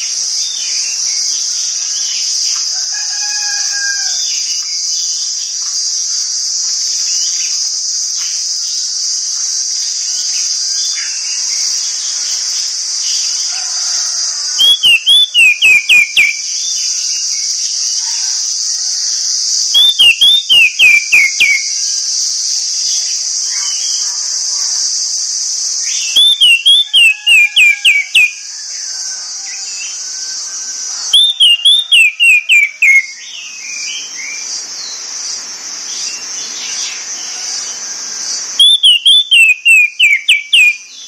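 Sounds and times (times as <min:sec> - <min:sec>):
insect buzz: 0:00.0 - 0:41.0
thrush whistling: 0:14.6 - 0:16.4, 0:19.5 - 0:21.8, 0:25.7 - 0:28.4, 0:31.1 - 0:33.1, 0:38.6 - 0:40.8
faint bird chirps: 0:14.6 - 0:21.8, 0:25.8 - 0:28.4, 0:38.6 - 0:40.9.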